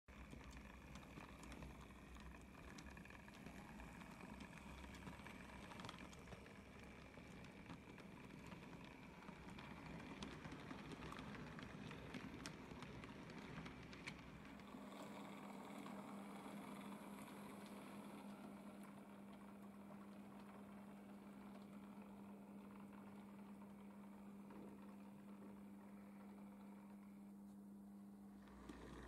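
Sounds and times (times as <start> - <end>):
model railway wagons rolling: 0.1 - 27.3, 28.1 - 29.0
electric motor hum: 13.3 - 29.0.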